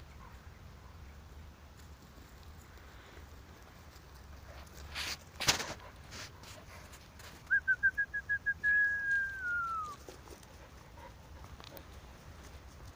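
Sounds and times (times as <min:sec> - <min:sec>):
rustling thump: 0:04.8 - 0:06.6
person whistling: 0:07.5 - 0:10.0.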